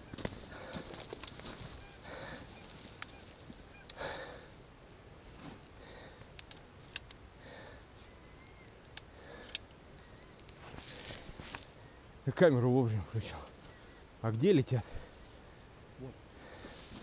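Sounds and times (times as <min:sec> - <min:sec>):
soft breathing: 0:01.8 - 0:02.8, 0:03.9 - 0:04.6, 0:05.2 - 0:06.4, 0:07.3 - 0:08.5, 0:09.1 - 0:12.0, 0:16.3 - 0:17.0
faint clicks: 0:05.6 - 0:07.2, 0:08.4 - 0:10.6.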